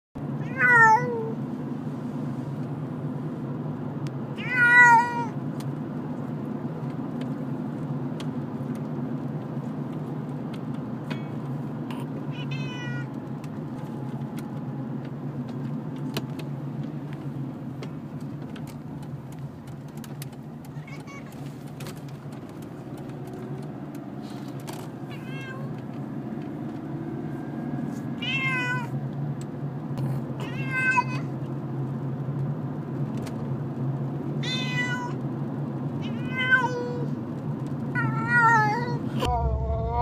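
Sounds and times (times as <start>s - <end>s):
cat meowing: 0.4s - 1.4s, 4.4s - 5.4s, 12.3s - 13.1s, 20.7s - 21.4s, 25.1s - 25.8s, 28.2s - 29.0s, 30.4s - 31.3s, 34.4s - 35.2s, 36.0s - 37.2s, 38.0s - 39.0s
steady low hum: 39.2s - 40.0s.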